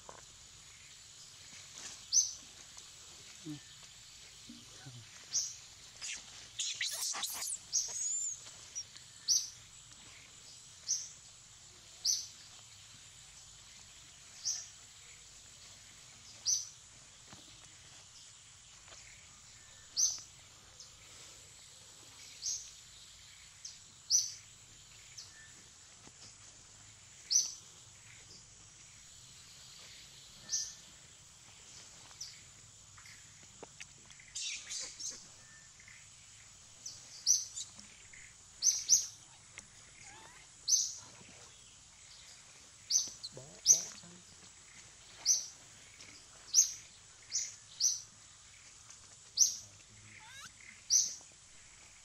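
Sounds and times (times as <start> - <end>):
bird chirping: 3.4 - 11.3, 34.1 - 48.7, 49.3 - 52.0.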